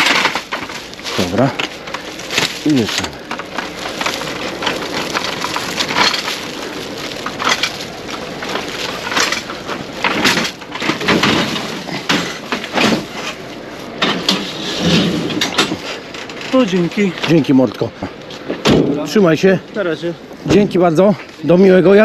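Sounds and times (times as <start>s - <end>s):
foil blanket crinkling: 0.0s - 17.6s.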